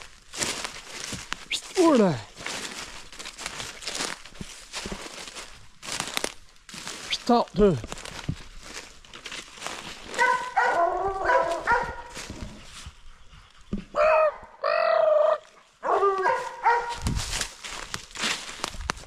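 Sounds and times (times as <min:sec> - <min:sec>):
hounds barking: 0:10.0 - 0:12.8, 0:13.8 - 0:17.0.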